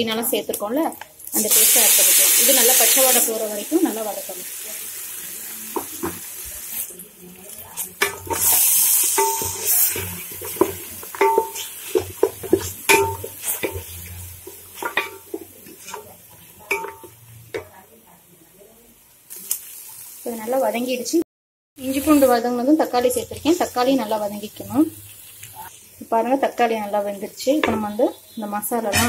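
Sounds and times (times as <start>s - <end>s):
pan sizzling loudly: 1.3s - 17.8s, 19.3s - 21.2s, 21.8s - 29.0s
wooden spatula scraping a pot: 7.8s - 17.0s
spatula knocking on metal pot: 9.2s - 16.1s, 16.7s - 17.7s.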